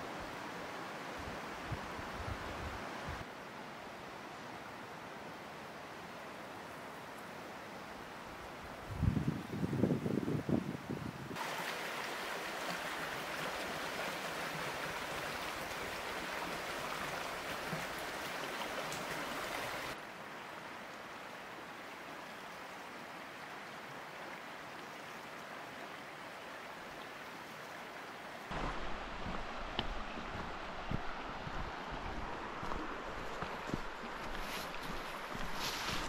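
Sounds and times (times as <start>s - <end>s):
wind buffeting microphone: 8.8s - 11.4s, 28.5s - 36.0s
river rushing over stones: 11.4s - 36.0s.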